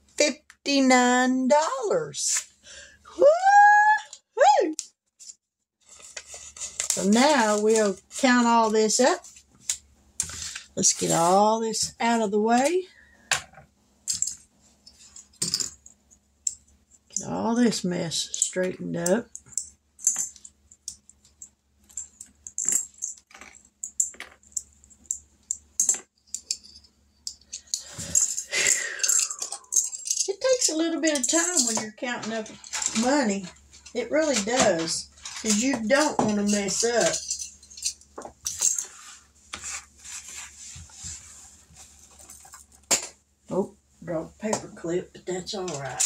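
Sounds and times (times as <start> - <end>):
papers rustling and scraping: 5.8 - 11.5, 38.5 - 42.8.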